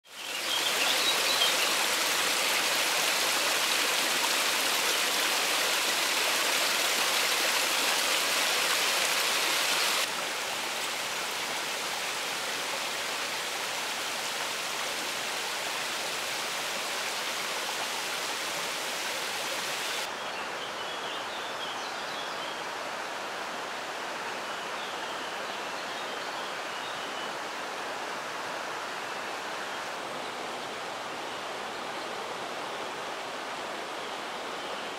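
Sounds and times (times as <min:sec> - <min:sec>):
water rushing over boulders: 0:00.1 - 0:20.1.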